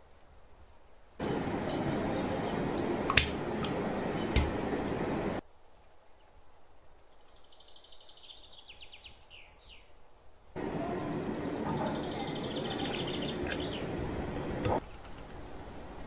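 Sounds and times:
steady hiss: 0:00.0 - 0:07.6
small bird trilling and chirping: 0:11.8 - 0:13.9.

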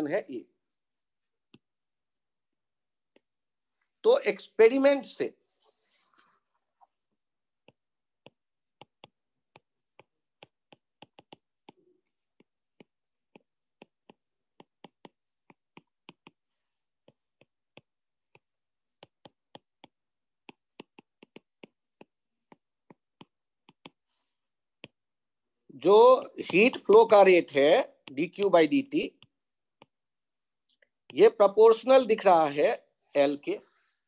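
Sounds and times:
pen clicks on digital whiteboard: 0:07.6 - 0:25.1, 0:26.4 - 0:32.2.

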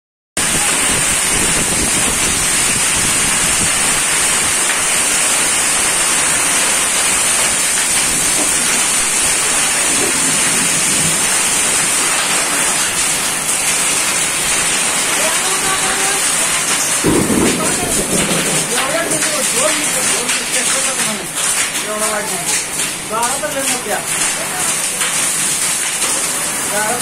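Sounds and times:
wind gusts buffeting microphone: 0:00.4 - 0:04.7, 0:17.0 - 0:20.2
heavy rain hiss: 0:00.4 - 0:27.0.

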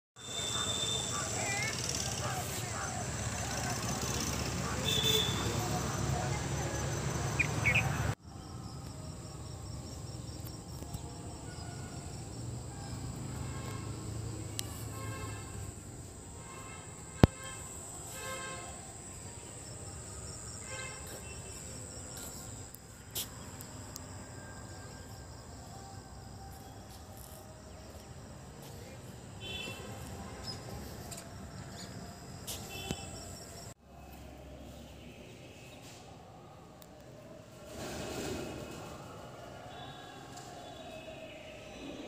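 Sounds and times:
short insect calls: 0:10.1 - 0:33.8.

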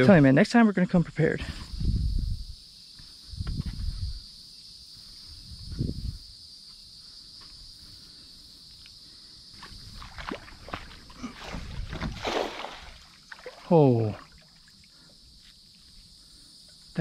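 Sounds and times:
insects buzzing: 0:00.0 - 0:17.0
small splashes and clicks: 0:09.6 - 0:14.8
water sloshing against kayak hull: 0:09.6 - 0:14.8.

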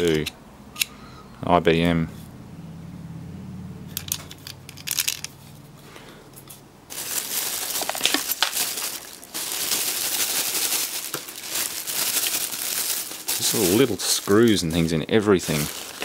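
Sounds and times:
small parts clicking: 0:00.0 - 0:01.0, 0:03.9 - 0:05.4
plastic bags crinkling: 0:06.9 - 0:16.0.

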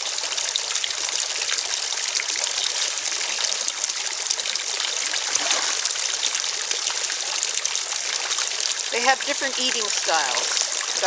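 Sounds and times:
pond water trickling: 0:00.0 - 0:11.0
fish splashing at surface: 0:05.0 - 0:06.8.

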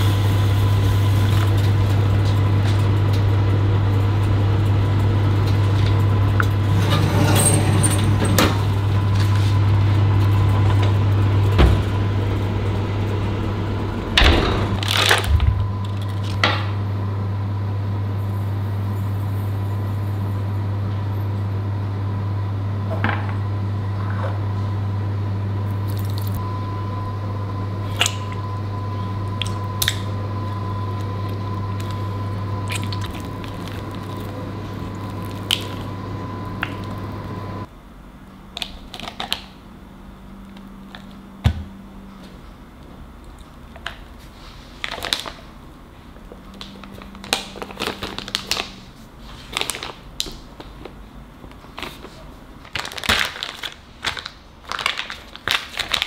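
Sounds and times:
steady low hum: 0:00.0 - 0:52.7
foil wrapper crinkling: 0:14.8 - 0:16.4, 0:44.8 - 0:45.4, 0:46.6 - 0:51.0, 0:51.8 - 0:56.0
cream cheese squishing: 0:31.8 - 0:35.9.

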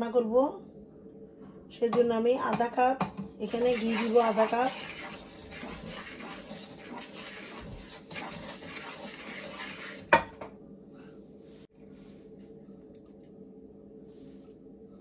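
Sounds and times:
spatula scraping semolina in wok: 0:03.5 - 0:10.2.

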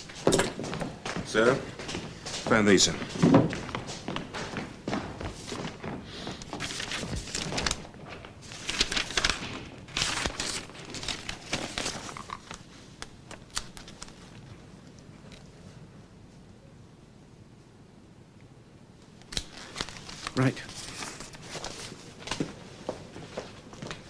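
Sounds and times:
paper rustling: 0:03.0 - 0:14.6, 0:19.3 - 0:22.6.

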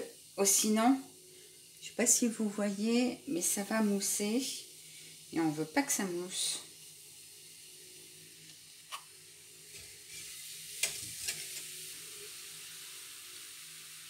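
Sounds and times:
fizzing hiss in a pot: 0:00.0 - 0:14.0.

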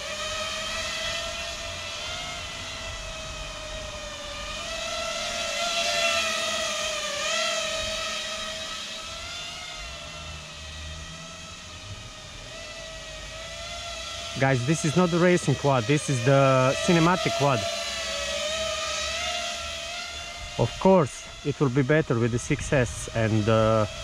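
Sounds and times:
drone propellers whining: 0:00.0 - 0:24.0
wind rumbling on microphone: 0:20.4 - 0:24.0.

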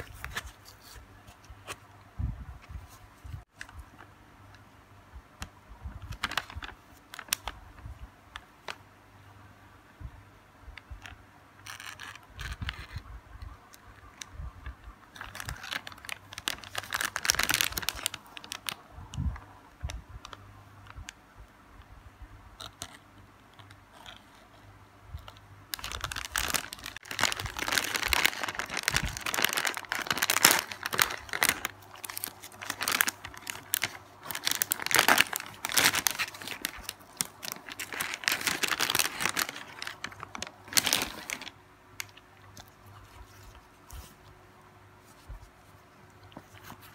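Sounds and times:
plastic wrapper crinkling: 0:06.0 - 0:08.8, 0:11.0 - 0:13.1, 0:13.7 - 0:21.2, 0:25.2 - 0:44.4.

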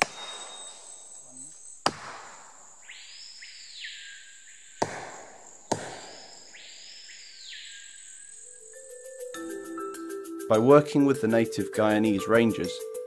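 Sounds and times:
high insect drone: 0:00.0 - 0:10.5
machete knocking on tree root: 0:01.8 - 0:02.3, 0:04.8 - 0:06.2
long swelling calls: 0:06.5 - 0:11.9.

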